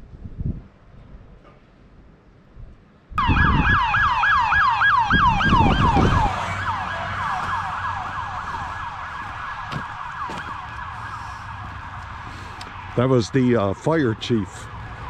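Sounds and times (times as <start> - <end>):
siren yelping: 3.2 - 13.0.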